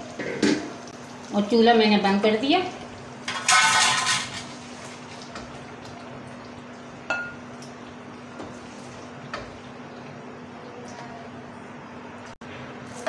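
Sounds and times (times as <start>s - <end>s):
glass clink: 7.1s - 7.4s.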